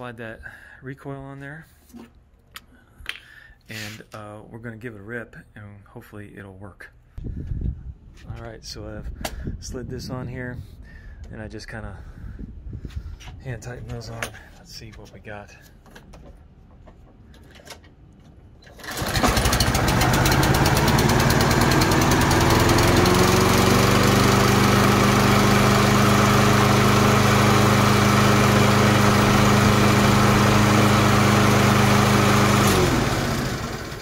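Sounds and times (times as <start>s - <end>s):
recoil starter pull: 18.6s - 23.8s
mower engine running: 18.6s - 34.0s.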